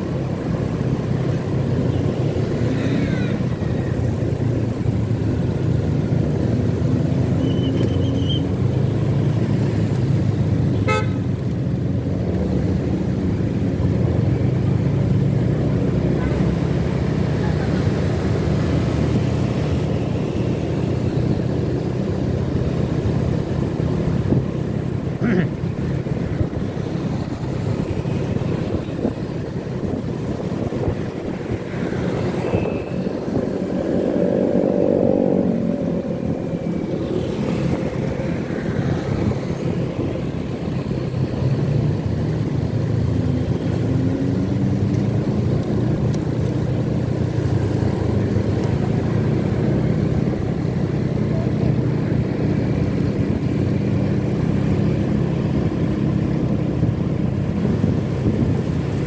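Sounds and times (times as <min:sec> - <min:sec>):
motorcycle engine and road noise: 0:00.0 - 0:59.0
passing vehicle engine: 0:12.1 - 0:59.0.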